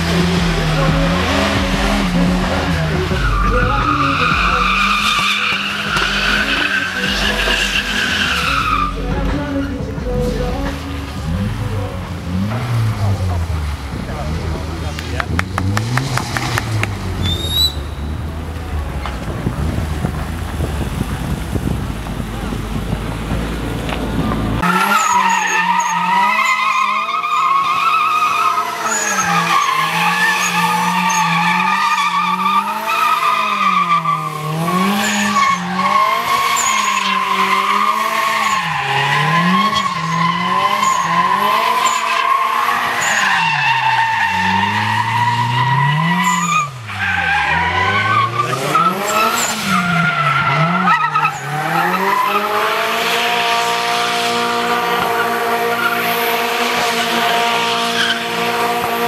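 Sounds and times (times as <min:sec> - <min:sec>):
car engine revving: 0:00.0 - 0:59.0
tyre squeal: 0:03.0 - 0:09.8, 0:16.7 - 0:18.3, 0:24.6 - 0:53.4.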